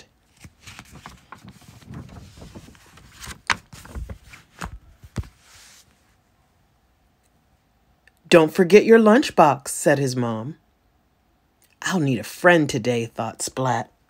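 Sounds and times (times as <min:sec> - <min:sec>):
picture book being handled: 0:00.0 - 0:06.2
page turning: 0:00.2 - 0:06.1.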